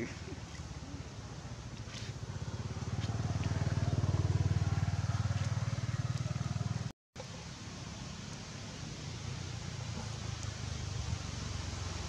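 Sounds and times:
engine running with low throb: 0.6 - 6.9.

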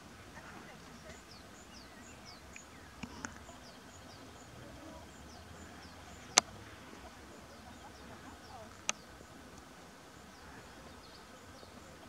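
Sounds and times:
faint clicks: 2.5 - 3.6, 5.6 - 7.0, 8.5 - 9.7.

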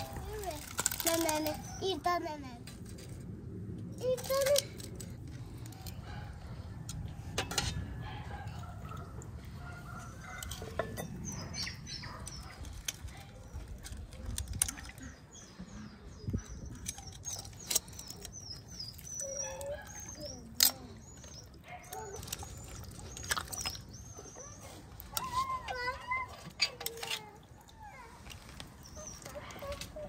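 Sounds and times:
birds chirping: 8.0 - 26.0, 27.4 - 30.0.

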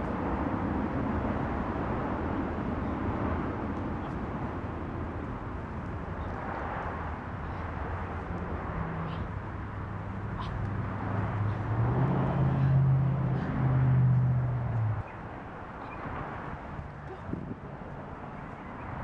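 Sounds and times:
engine running with low hum: 7.5 - 17.8.

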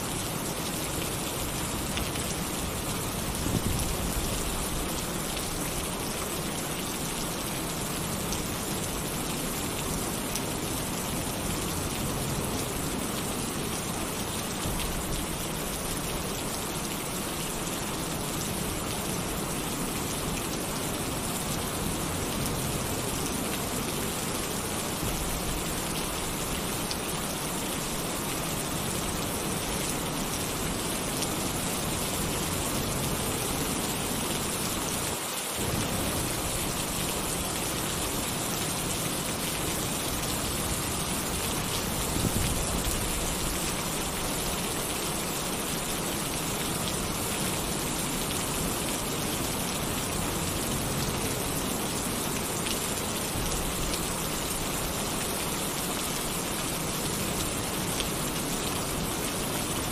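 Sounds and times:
rain on a tin roof: 0.0 - 59.9.

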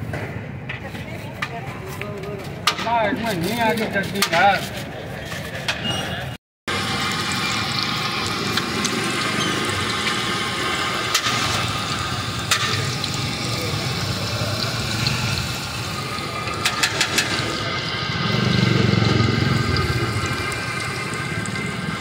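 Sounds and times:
batter sizzling in hot oil: 6.7 - 22.0
low rumble: 17.8 - 22.0.

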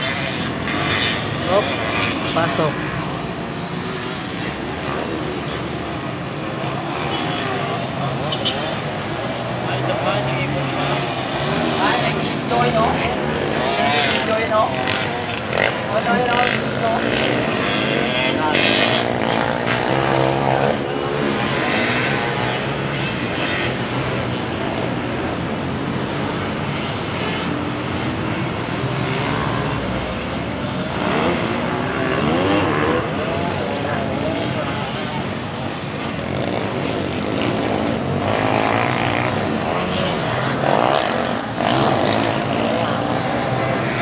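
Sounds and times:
distant dirt bike engines buzzing: 0.0 - 44.0.

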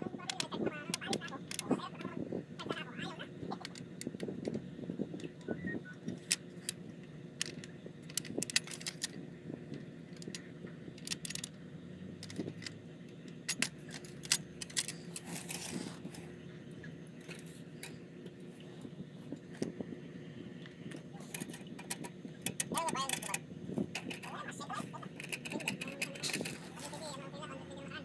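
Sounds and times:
small metal tools clinking: 7.4 - 9.2, 13.4 - 16.2, 21.2 - 23.4, 25.0 - 27.0.

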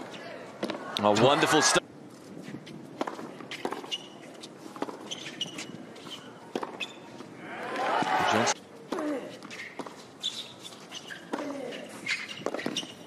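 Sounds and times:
sneakers squeaking on court: 2.6 - 7.2, 9.3 - 13.0.

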